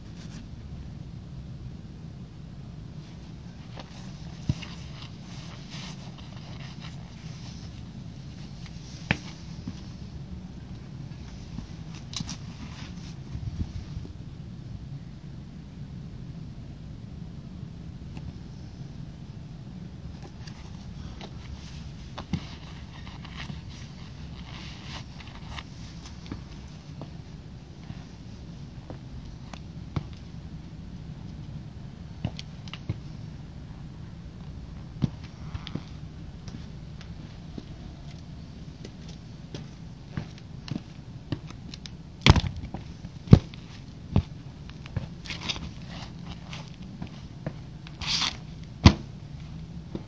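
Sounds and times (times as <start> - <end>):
steady low rumble: 0.0 - 50.0
cloth rustling: 3.0 - 14.0, 20.2 - 30.3, 37.0 - 50.0
sneakers stepping on brick paving: 20.3 - 30.4, 34.4 - 50.0.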